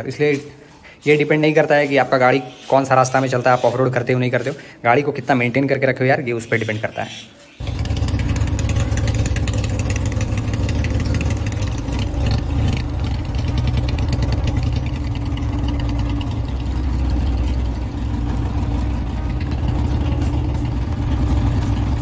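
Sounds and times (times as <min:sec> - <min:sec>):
motorcycle engine idling: 0:07.6 - 0:22.0.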